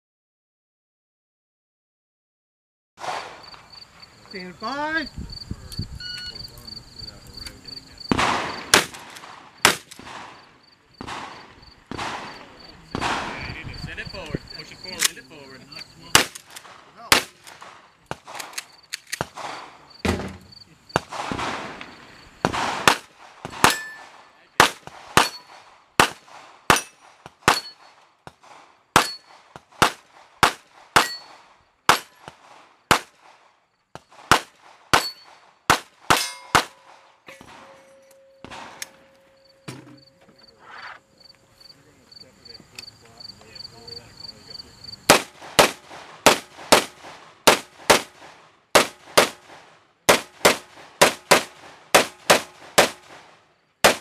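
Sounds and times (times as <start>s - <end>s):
ringing tone: 6.0s - 6.4s, 37.3s - 40.3s
handgun shots: 8.1s - 10.4s, 11.0s - 13.4s, 16.2s - 20.4s, 22.5s - 33.2s, 34.2s - 37.8s, 38.4s - 39.0s, 45.1s - 48.2s
steel targets ringing: 23.7s - 24.1s, 25.2s - 25.6s, 26.7s - 27.9s, 29.0s - 29.3s, 31.0s - 31.4s, 35.0s - 35.3s, 36.1s - 40.1s.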